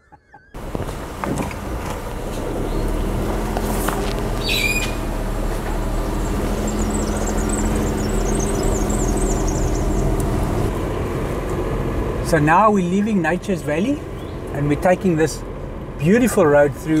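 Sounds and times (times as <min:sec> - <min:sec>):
high twittering birdsong: 0:00.0 - 0:00.6, 0:02.1 - 0:03.6, 0:04.2 - 0:10.7, 0:13.6 - 0:15.5
car engine running: 0:00.3 - 0:17.0
bird squawk: 0:04.4 - 0:05.1.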